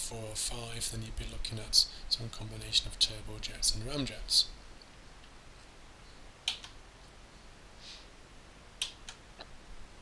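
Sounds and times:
computer mouse clicks: 6.4 - 6.8, 8.8 - 9.5.

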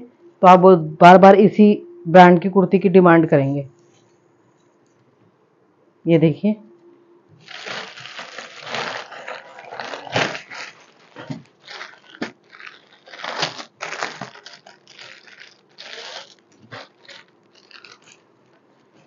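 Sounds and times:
plastic bags crinkling: 7.4 - 19.0.

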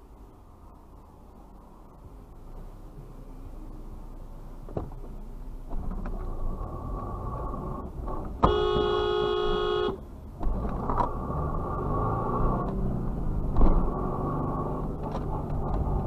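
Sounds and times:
road and engine rumble: 0.0 - 16.0
car horn honk: 8.4 - 10.0.

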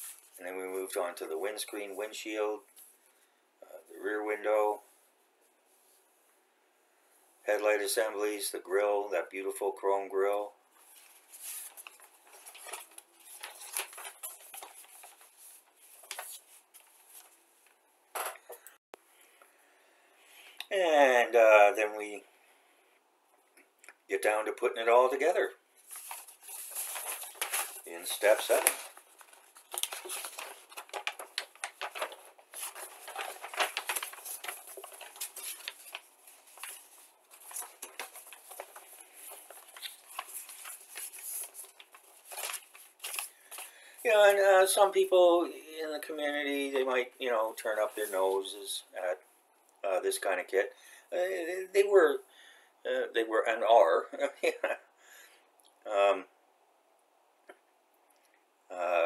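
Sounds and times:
plastic rustling: 10.8 - 17.8, 25.1 - 44.9.

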